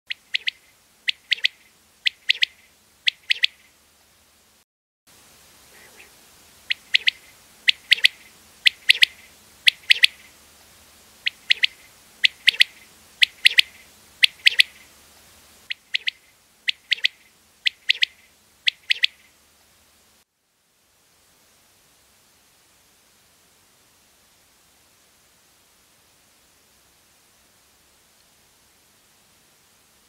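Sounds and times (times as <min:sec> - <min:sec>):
quail calling: 0:00.1 - 0:03.7, 0:05.7 - 0:10.3, 0:11.2 - 0:14.9, 0:15.7 - 0:19.3.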